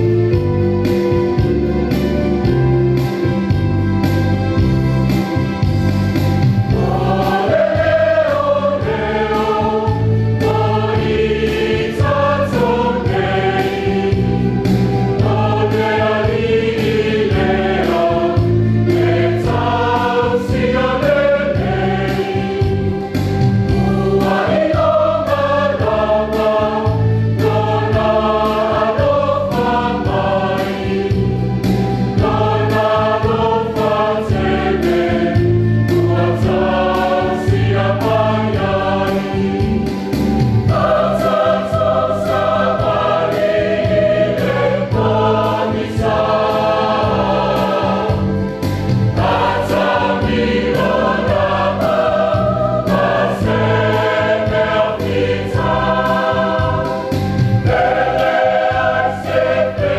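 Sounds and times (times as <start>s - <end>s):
church choir singing a hymn: 0.0s - 59.9s
instrumental accompaniment with beat: 0.0s - 59.9s.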